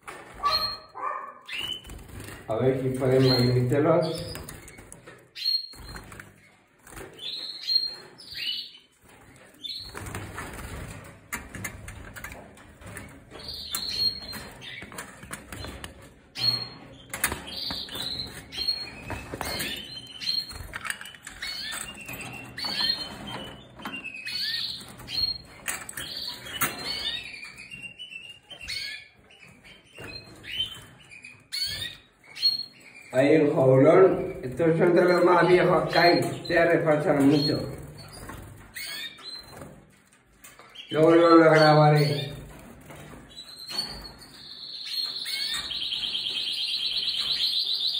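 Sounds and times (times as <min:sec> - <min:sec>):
wings fluttering in cage: 0:00.0 - 0:32.0
canaries chirping: 0:00.0 - 0:47.9.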